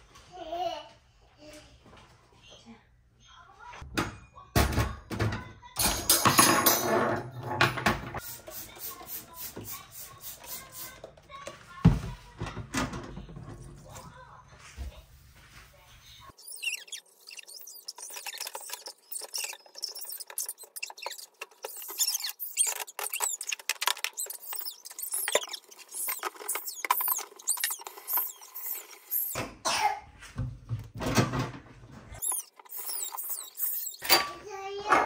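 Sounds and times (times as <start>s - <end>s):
sponge scrubbing stovetop: 13.9s - 29.4s
small squeaks: 16.2s - 29.4s, 32.1s - 34.3s.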